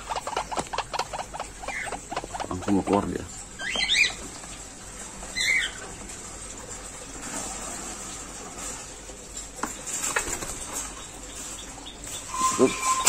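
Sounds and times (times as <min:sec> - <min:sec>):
cage and basin clicks: 0:00.0 - 0:04.8
bird squeaky call: 0:12.1 - 0:13.0.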